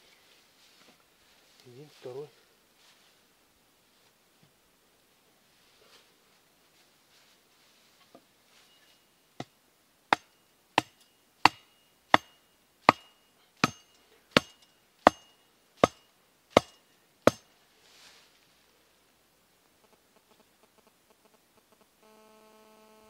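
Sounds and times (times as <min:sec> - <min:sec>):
hammer blows on metal stake: 0:10.1 - 0:17.5.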